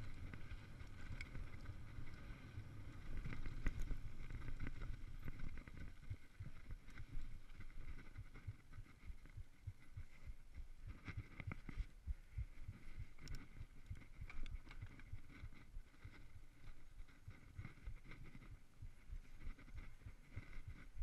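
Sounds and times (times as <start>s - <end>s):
bike rattling over bumps: 0.0s - 8.3s
bike tyres on dirt: 0.0s - 8.4s
wind on microphone: 0.0s - 21.0s.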